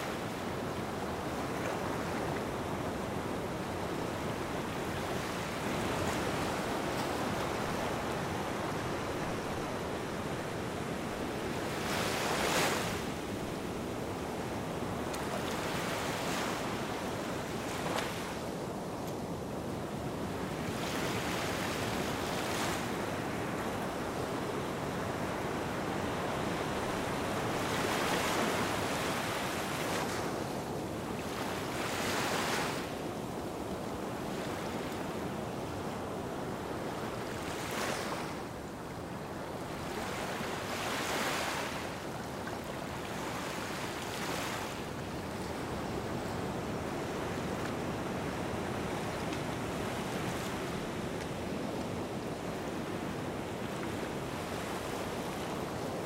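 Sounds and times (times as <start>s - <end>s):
small waves washing onto sand: 0.0s - 56.0s.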